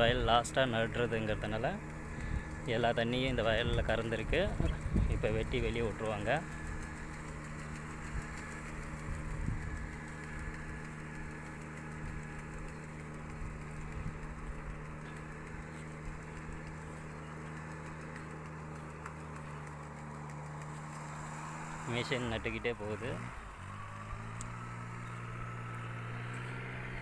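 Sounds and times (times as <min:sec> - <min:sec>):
engine humming steadily: 0:00.0 - 0:27.0.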